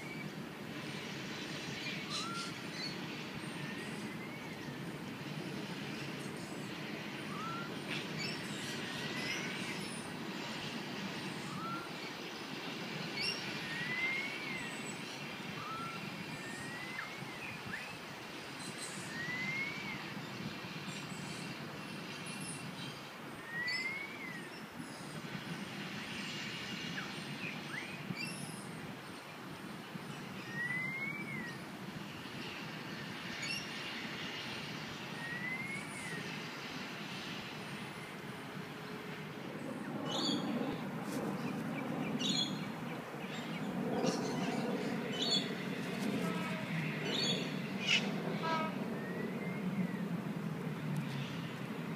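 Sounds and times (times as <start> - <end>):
bird whistled calls: 2.1 - 2.9, 7.3 - 7.7, 11.4 - 11.9, 19.1 - 20.0, 23.5 - 24.5, 30.5 - 31.6, 35.2 - 36.2.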